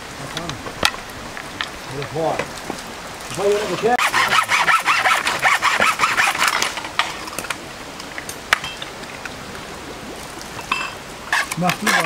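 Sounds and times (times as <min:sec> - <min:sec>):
rapid scraping and rattling: 0:00.3 - 0:07.6, 0:11.3 - 0:12.0
plates and dishes clinking: 0:10.6 - 0:12.0.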